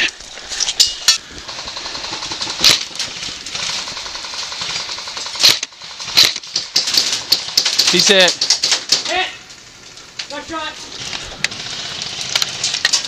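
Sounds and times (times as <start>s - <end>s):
airsoft guns firing on full auto: 1.2s - 9.2s.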